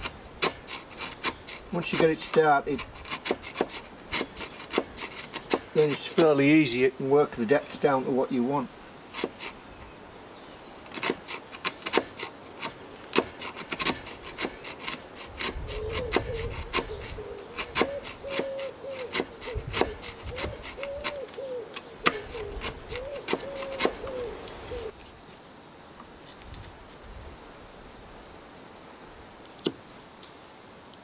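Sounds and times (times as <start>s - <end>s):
blade cutting wood: 0.0s - 6.8s, 9.1s - 9.6s, 10.8s - 24.9s.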